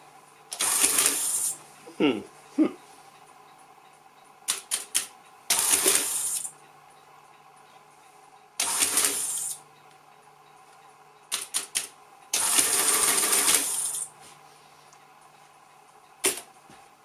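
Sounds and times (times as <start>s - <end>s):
mechanical calculator cycling: 0.5s - 1.5s, 4.5s - 6.5s, 8.6s - 9.6s, 11.3s - 14.1s.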